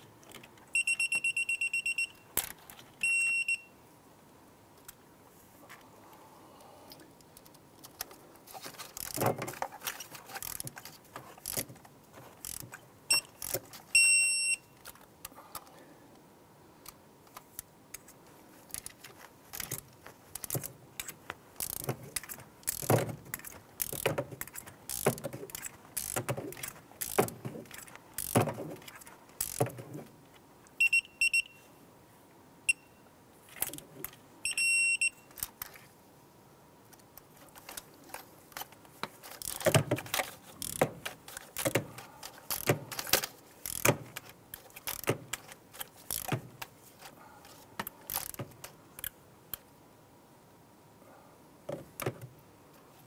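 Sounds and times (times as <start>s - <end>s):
torque wrench ratchet clicks: 21.6s - 21.8s, 24.9s - 25.1s, 26.0s - 26.2s, 27.0s - 27.2s, 28.2s - 28.4s, 29.4s - 29.6s, 43.6s - 43.9s.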